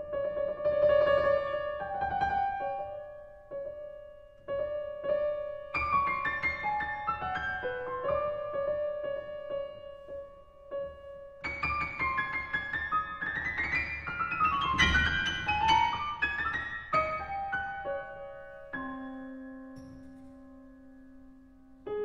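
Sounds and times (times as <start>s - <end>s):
solo grand piano: 0.0s - 22.0s.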